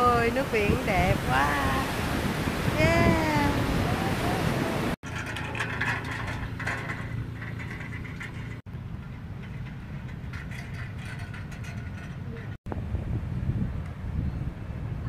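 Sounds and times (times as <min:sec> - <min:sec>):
surf: 0:00.0 - 0:08.7
wind: 0:00.0 - 0:15.0
utility vehicle engine running: 0:05.0 - 0:12.6.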